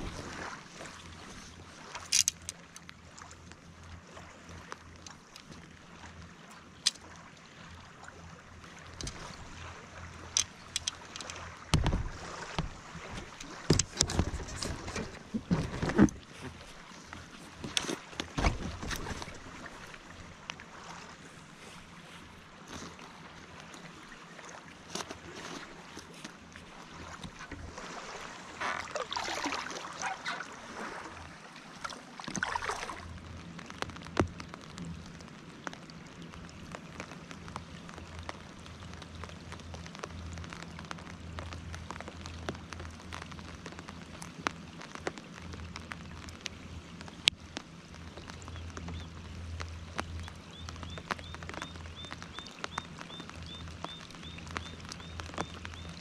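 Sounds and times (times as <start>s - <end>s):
raindrops ticking on water: 1.8s - 7.3s, 8.6s - 20.6s, 32.2s - 56.0s.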